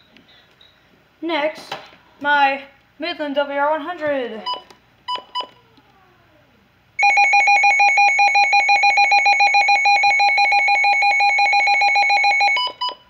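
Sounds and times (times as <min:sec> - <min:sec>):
pulsing electronic alarm: 0:07.0 - 0:13.0.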